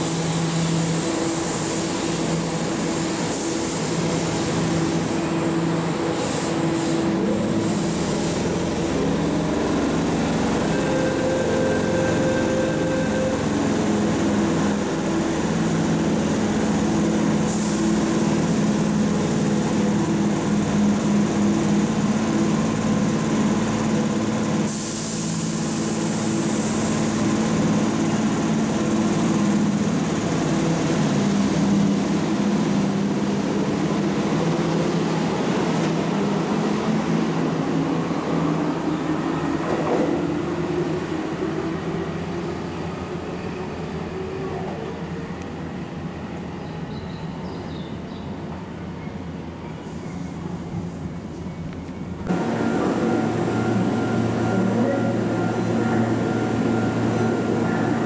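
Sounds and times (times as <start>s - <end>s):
electric train motor hum: 52.3s - 58.0s.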